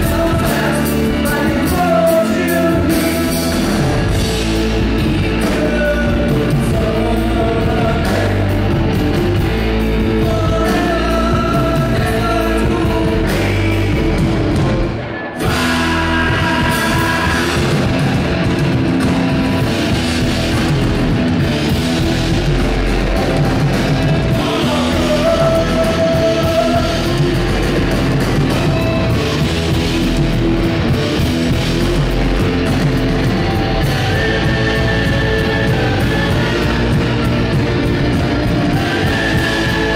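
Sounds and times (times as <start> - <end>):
man singing: 0.0 - 19.0, 23.6 - 29.6, 33.1 - 39.9
bass guitar: 0.0 - 39.9
distorted electric guitars: 0.0 - 39.9
drums: 0.0 - 39.9.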